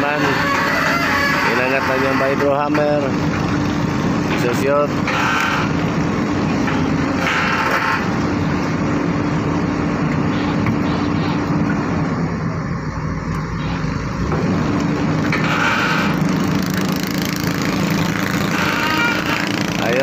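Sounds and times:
excavator engine under load: 0.0 - 20.0
vibratory hammer drone: 13.6 - 20.0.

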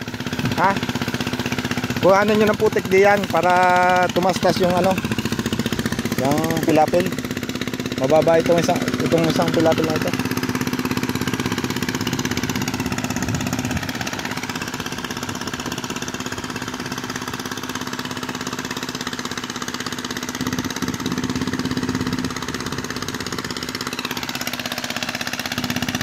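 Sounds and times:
boat tiller engine running: 0.0 - 26.0.

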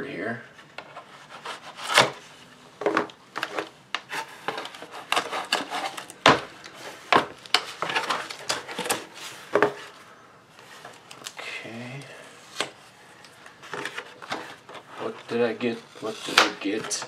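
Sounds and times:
knife cutting tape and cardboard: 1.3 - 2.2, 4.1 - 6.2, 15.9 - 17.0.

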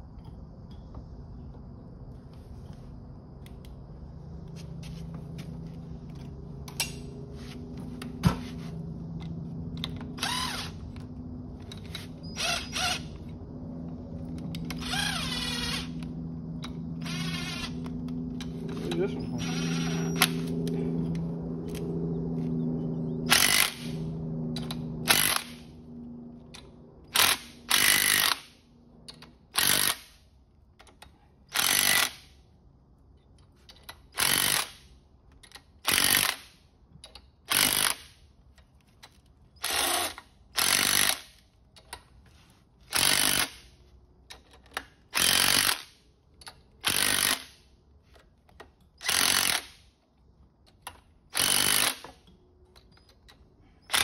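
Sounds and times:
steady low hum: 0.0 - 31.6.

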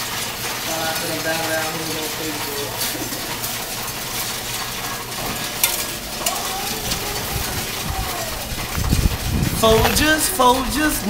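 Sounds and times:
coins rattling through machine: 0.9 - 8.5.

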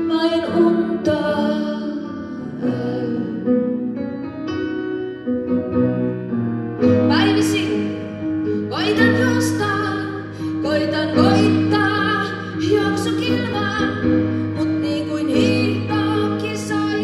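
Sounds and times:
woman singing: 0.0 - 3.7, 7.1 - 8.1, 8.7 - 17.0
upright piano: 0.0 - 17.0.

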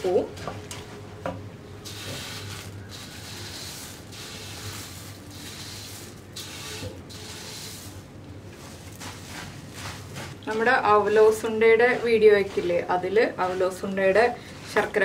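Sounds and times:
puffed rice rustling on steel plate: 1.9 - 8.0, 8.6 - 10.5.

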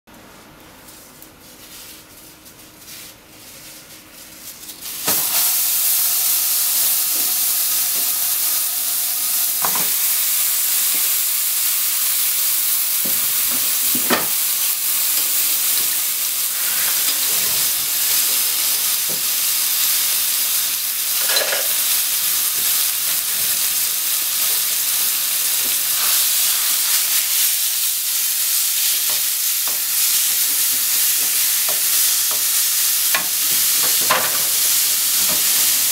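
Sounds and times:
meat sizzling in a frying pan: 4.6 - 35.9.

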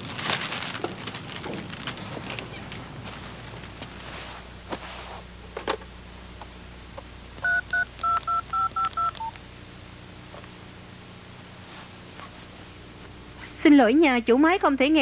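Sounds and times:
touch-tone keypad beeps: 7.4 - 9.4
sharp clicks: 7.4 - 9.5.

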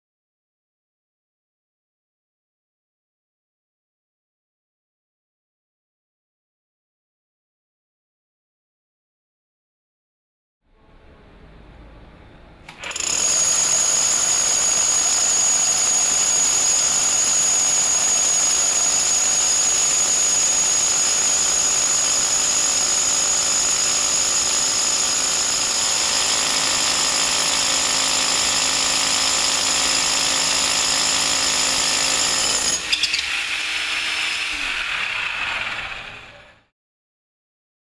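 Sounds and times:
rotary hammer drill boring into brick: 12.8 - 36.5.

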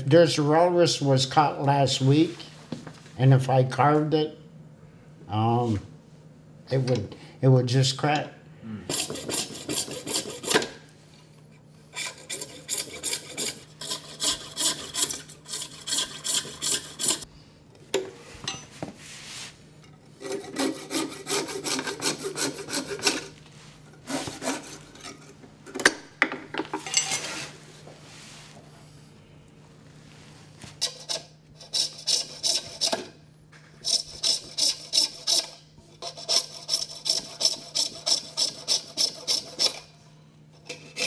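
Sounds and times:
coping saw rasping strokes: 8.9 - 10.6, 12.0 - 17.3, 20.2 - 23.3, 24.0 - 25.1, 30.8 - 33.0, 33.8 - 39.8.

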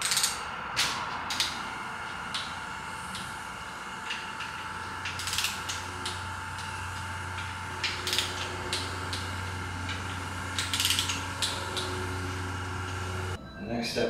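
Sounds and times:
torque wrench ratcheting: 0.0 - 3.3, 4.0 - 13.3
steady low hum: 0.0 - 14.0.

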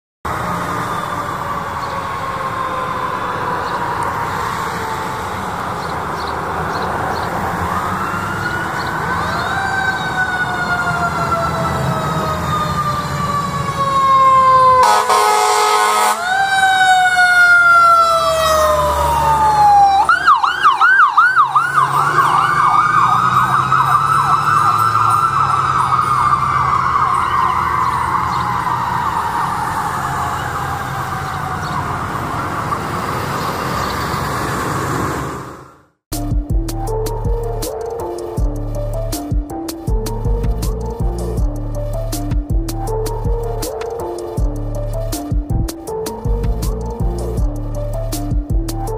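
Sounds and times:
electronic sirens wailing: 0.3 - 35.8, 36.8 - 48.9
truck engine rumble: 0.3 - 48.9
siren fast yelp: 7.4 - 33.0
loud air horn blast: 14.8 - 16.4.

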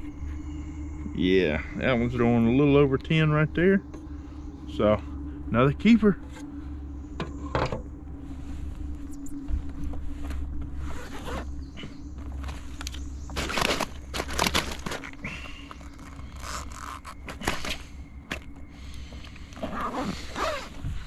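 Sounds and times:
steady low hum: 0.0 - 21.0
scraping and rustling of bag: 8.2 - 18.0
zipper being pulled: 10.8 - 11.5, 16.0 - 17.3, 19.6 - 20.8.

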